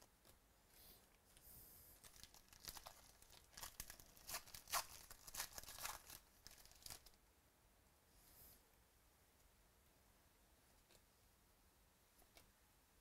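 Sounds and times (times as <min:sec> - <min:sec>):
foil wrapper tearing and crinkling: 0:02.0 - 0:07.2.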